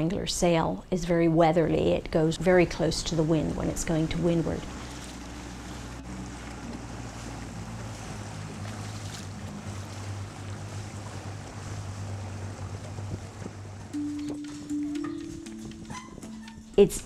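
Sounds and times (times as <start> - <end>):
low steady hum: 0.0 - 17.0
water washing past: 3.0 - 14.0
wind on microphone: 9.6 - 14.4, 15.1 - 17.0.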